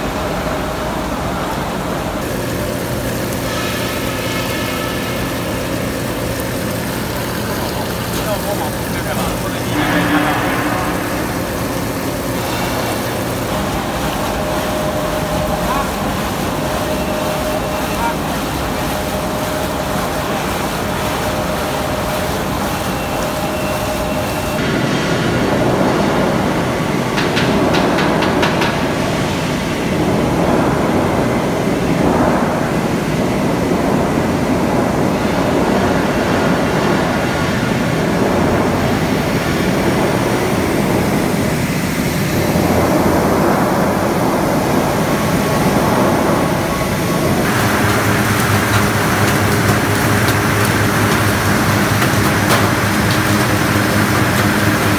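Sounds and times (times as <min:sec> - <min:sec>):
loud machinery noise: 0:00.0 - 0:54.9
water churning in tank: 0:00.0 - 0:54.9.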